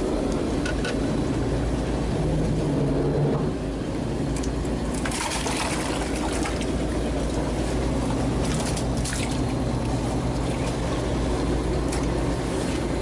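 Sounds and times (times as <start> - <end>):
boat engine humming: 0.0 - 13.0
short clicks or light splashes: 4.3 - 6.7, 8.4 - 10.8.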